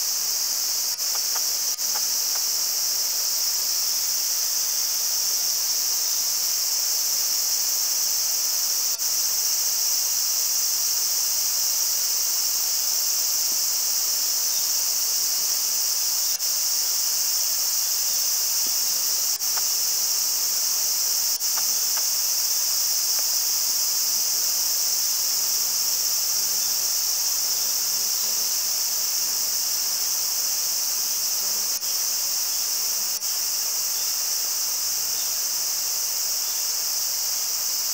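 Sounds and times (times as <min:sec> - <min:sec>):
insect chorus drone: 0:00.0 - 0:37.9
faint ticks: 0:00.9 - 0:02.5, 0:19.4 - 0:19.7, 0:21.4 - 0:22.1.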